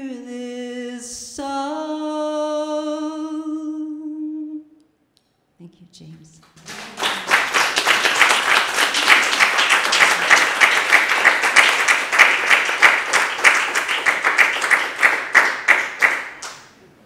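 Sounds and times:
audience applauding: 6.5s - 16.8s.

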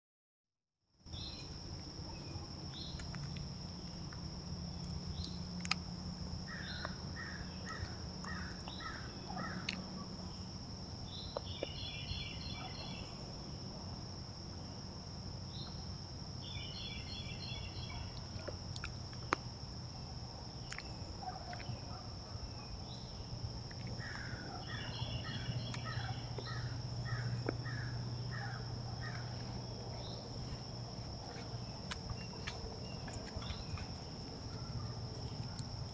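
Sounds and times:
woodland birds singing: 1.1s - 5.6s, 6.5s - 13.3s, 15.4s - 18.4s, 20.5s - 35.6s.

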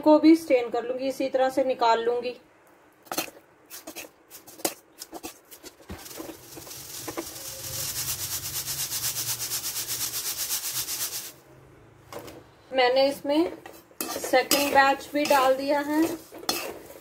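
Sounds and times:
strainer rattling with salt sifting: 3.7s - 11.4s, 14.0s - 17.0s
metal skimmer scraping a pan: 13.6s - 17.0s.

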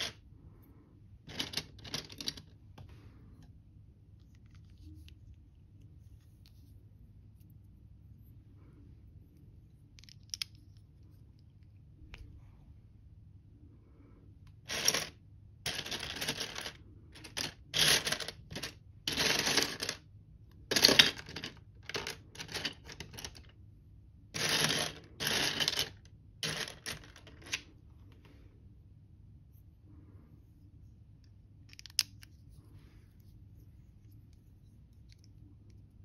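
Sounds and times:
plastic toy pieces clattering: 1.3s - 2.6s, 14.6s - 20.1s, 20.7s - 23.5s, 24.4s - 27.7s.

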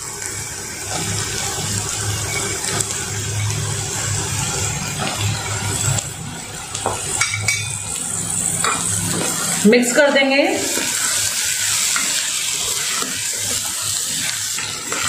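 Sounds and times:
food sizzling in oil: 0.0s - 15.0s.

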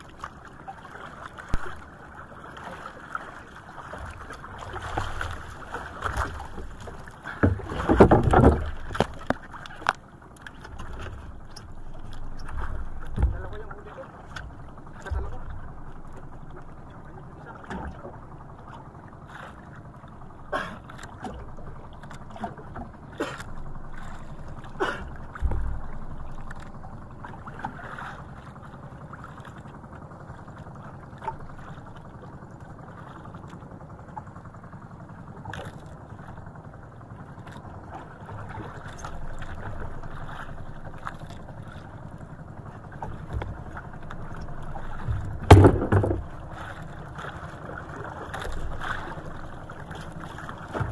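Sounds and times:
wind and water wash: 0.0s - 50.9s
loud thump: 45.4s - 46.2s.

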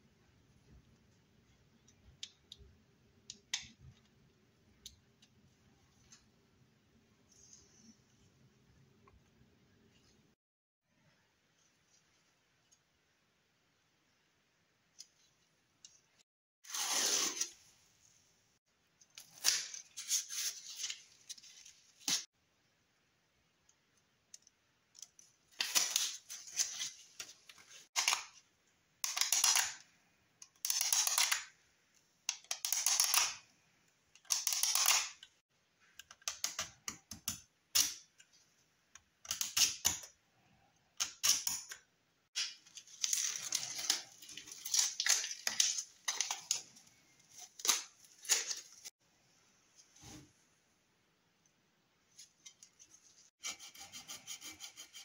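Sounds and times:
tape crinkling and rustling: 42.4s - 48.9s.

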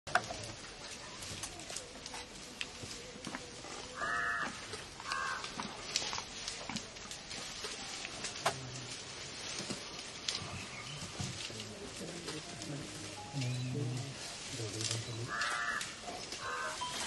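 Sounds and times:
dry grass and twigs rustling: 0.1s - 17.0s
crow cawing: 4.0s - 5.4s, 15.3s - 16.8s.

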